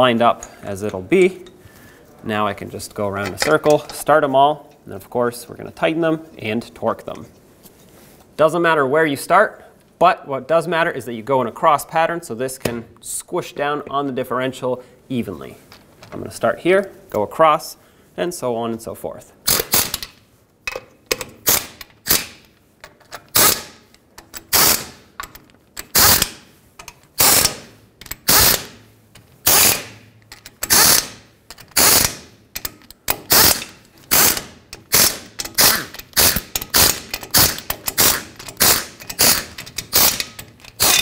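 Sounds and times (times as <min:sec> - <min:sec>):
pneumatic air ratchet bursts: 0:19.5 - 0:20.1, 0:21.4 - 0:22.4, 0:23.3 - 0:23.8, 0:24.4 - 0:25.0, 0:25.8 - 0:26.4, 0:27.2 - 0:28.8, 0:29.4 - 0:30.0, 0:30.6 - 0:41.0.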